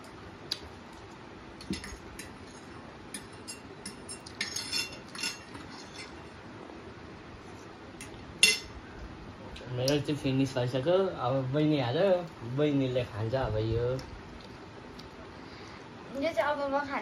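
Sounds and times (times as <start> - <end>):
cutlery clinking against plates: 1.6 - 6.3, 8.0 - 8.8.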